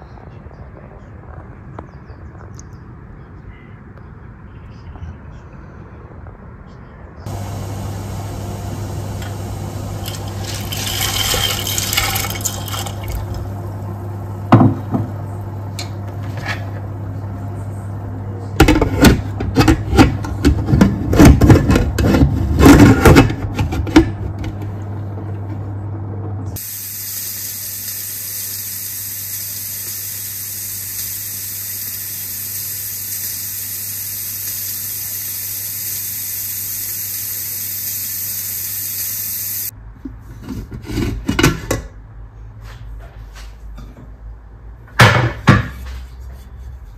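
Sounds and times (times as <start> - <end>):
kitchen tap running: 7.3 - 15.1
low hum: 7.3 - 18.6
kitchen items knocking: 10.0 - 13.5.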